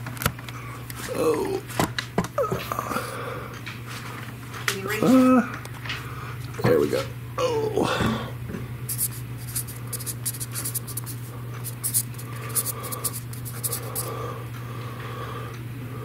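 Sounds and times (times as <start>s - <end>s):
steady low hum: 5.2s - 16.0s
marker squeaking on a wall: 8.9s - 14.1s.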